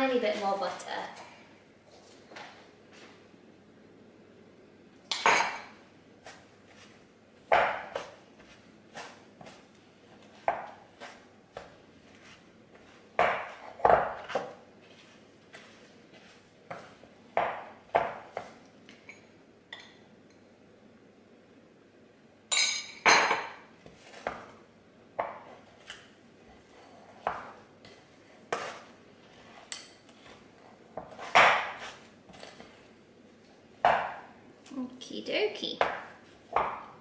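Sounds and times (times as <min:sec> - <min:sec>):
wooden spoon scraping glass bowl: 0:26.5 - 0:32.9.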